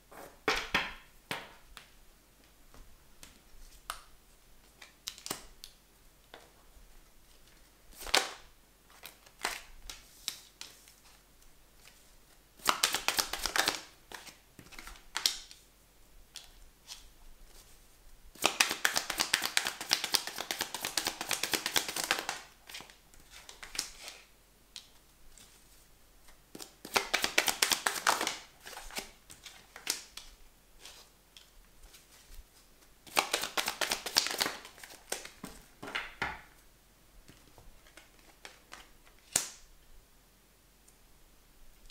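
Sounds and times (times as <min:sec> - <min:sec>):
cards being shuffled: 0:12.6 - 0:15.6, 0:18.4 - 0:24.2, 0:26.5 - 0:32.3, 0:33.1 - 0:35.9.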